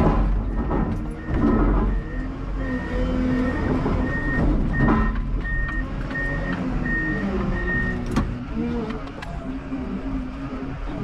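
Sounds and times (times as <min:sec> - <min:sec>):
diesel engine running: 0:00.0 - 0:11.0
reverse alarm beeping: 0:01.2 - 0:08.0.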